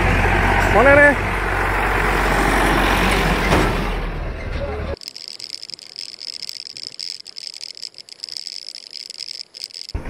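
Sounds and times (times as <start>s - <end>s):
faint clicks: 5.0s - 10.0s
high-pitched insect chorus: 5.0s - 10.0s.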